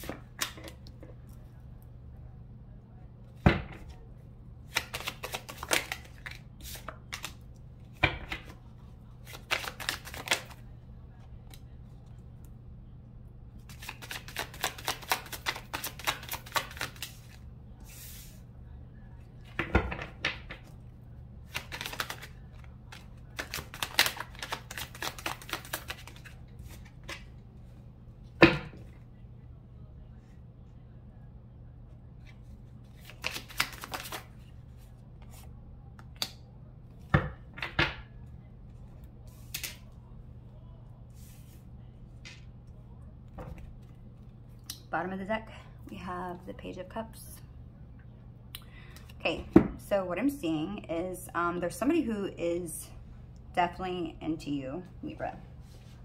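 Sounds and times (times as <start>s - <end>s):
cards slapping on table: 4.7s - 7.3s, 9.2s - 10.6s, 13.7s - 17.4s, 21.5s - 22.3s, 22.9s - 27.2s, 33.0s - 34.3s, 39.4s - 39.8s
cards shuffling: 4.7s - 10.6s, 13.6s - 18.4s, 21.5s - 27.4s, 32.2s - 35.5s, 39.3s - 39.8s.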